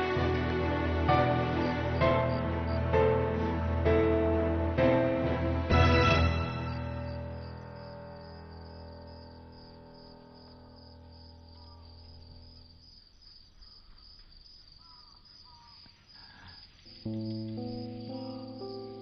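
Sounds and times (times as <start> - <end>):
crickets chirping: 0.0 - 4.6, 6.2 - 19.0
held music chord: 0.0 - 12.4, 16.9 - 19.0.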